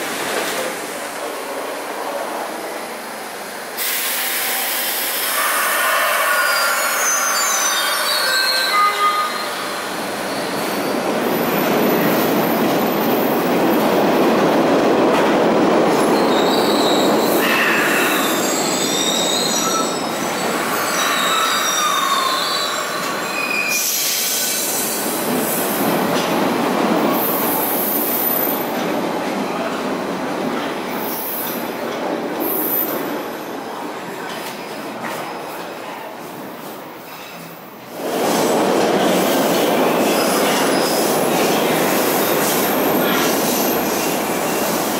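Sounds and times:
high wheel squeals: 0:05.3 - 0:10.9, 0:16.2 - 0:24.9
train wheels rumbling on rails: 0:09.5 - 0:44.9.

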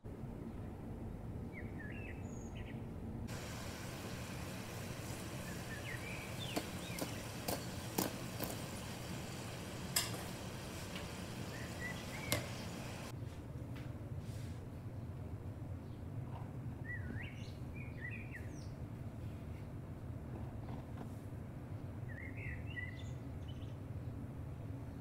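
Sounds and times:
birds chirping: 0:01.6 - 0:13.1
deep-frying sizzle: 0:03.3 - 0:13.1.

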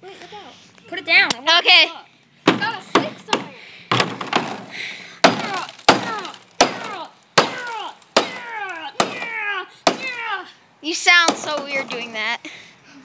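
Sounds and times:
person crying out: 0:05.3 - 0:10.6.

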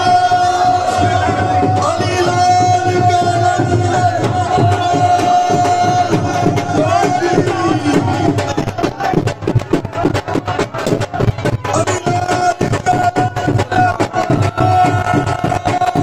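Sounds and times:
person singing long notes: 0:00.0 - 0:08.5
percussion beat: 0:00.0 - 0:16.0.

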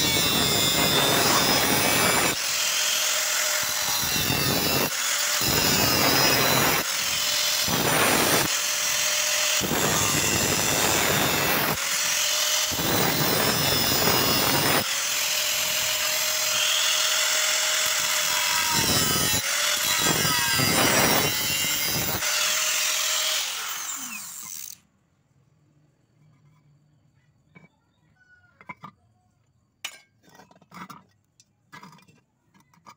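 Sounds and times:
angle grinder cutting steel: 0:00.0 - 0:24.8.

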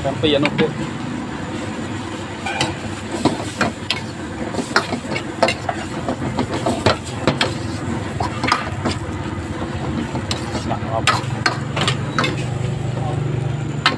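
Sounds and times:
frying hiss: 0:00.0 - 0:13.9
metal utensils scraping a wok: 0:01.8 - 0:12.9.

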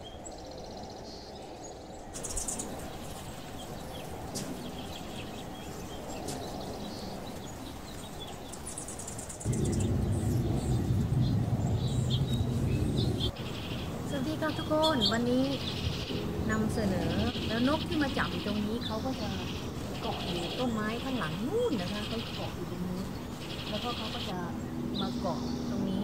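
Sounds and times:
small birds chirping: 0:00.0 - 0:26.0
low background rumble: 0:02.0 - 0:26.0
loud low hum: 0:09.4 - 0:26.0.

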